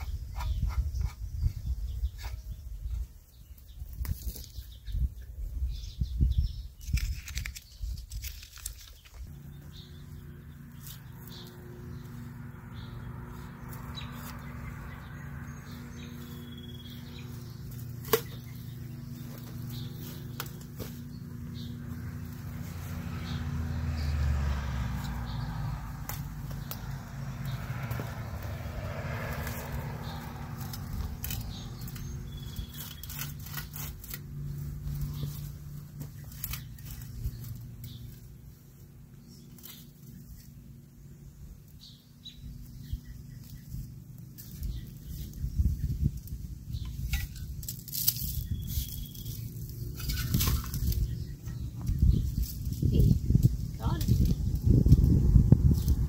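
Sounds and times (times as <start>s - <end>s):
digging tool crunching into soil: 16.1s - 21.7s
bulb planter digging into soil: 46.8s - 51.1s.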